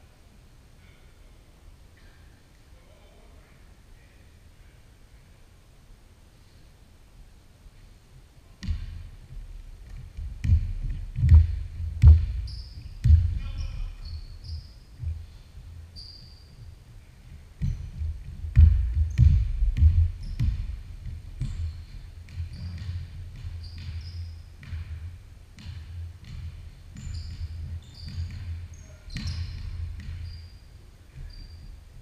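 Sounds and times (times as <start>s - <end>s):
basketball bouncing on wooden floor: 8.6s - 32.0s
sneakers squeaking: 8.6s - 32.0s.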